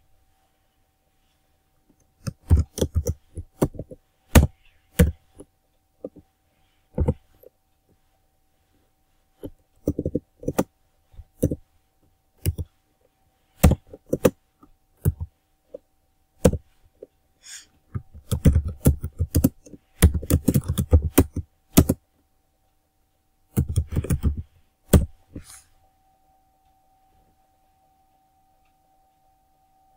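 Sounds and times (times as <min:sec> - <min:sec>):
faint steady hum: 0:00.0 - 0:29.9
typing on computer keyboard: 0:02.0 - 0:06.2, 0:09.5 - 0:10.7, 0:11.4 - 0:11.6, 0:12.4 - 0:12.7, 0:13.6 - 0:14.4, 0:15.0 - 0:15.3, 0:16.4 - 0:16.7, 0:18.0 - 0:22.0, 0:23.5 - 0:25.1.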